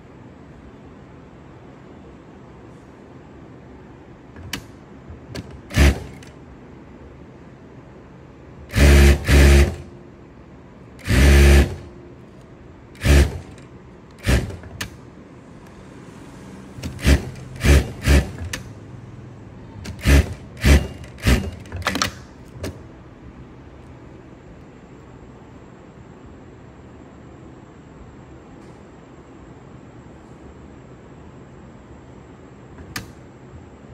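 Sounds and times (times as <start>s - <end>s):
sewing machine stitching: 5.4s - 6.3s, 8.7s - 9.9s, 11.0s - 11.9s, 13.0s - 13.6s, 14.2s - 14.9s, 16.8s - 18.7s, 19.8s - 21.9s.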